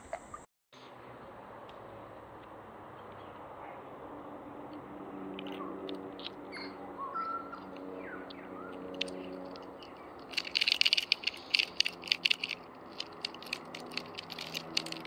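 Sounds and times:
wooden lure clacking: 9.0 - 15.0.

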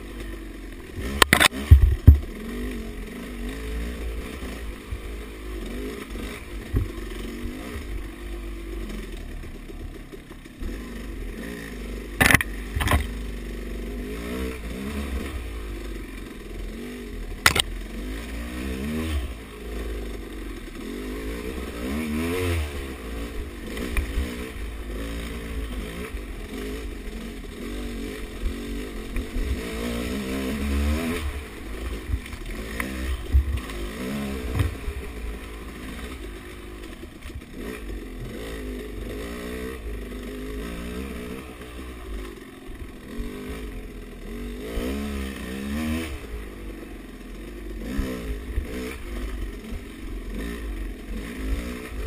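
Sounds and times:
dirt bike engine revving: 0.0 - 52.0
sharp knocks: 1.2 - 2.3.

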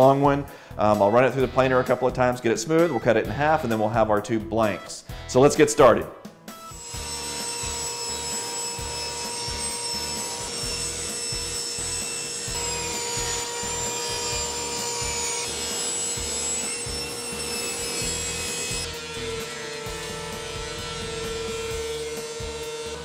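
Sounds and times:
table saw cutting wood: 6.5 - 23.0.

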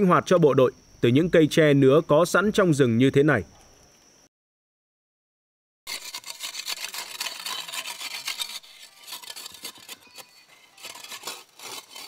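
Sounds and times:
bamboo being scraped by hand: 5.9 - 12.0.

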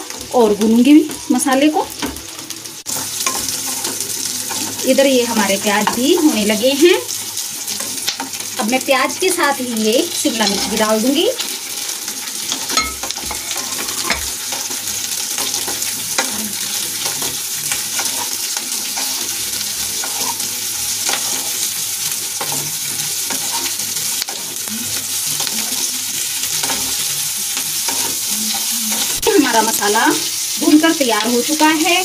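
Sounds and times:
vegetables sizzling in hot oil: 0.0 - 32.0
wooden spatula scraping pan: 10.3 - 11.1, 12.7 - 14.4, 20.0 - 21.6.

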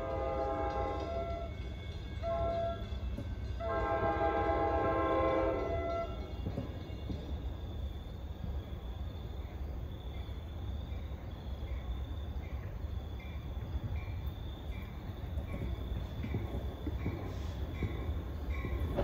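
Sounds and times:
cricket chirps: 0.0 - 19.0
insects trilling: 5.4 - 19.0.

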